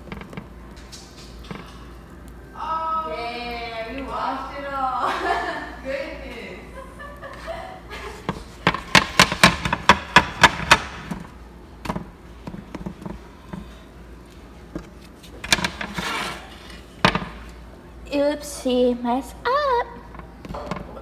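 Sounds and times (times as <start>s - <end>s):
spatula tapping a griddle: 8.2s - 11.2s
spatula scraping: 14.8s - 17.5s.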